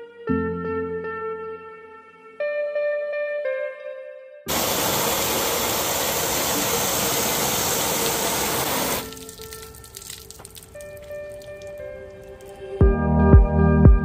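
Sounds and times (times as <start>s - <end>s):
hose spraying water on car: 4.5s - 10.7s.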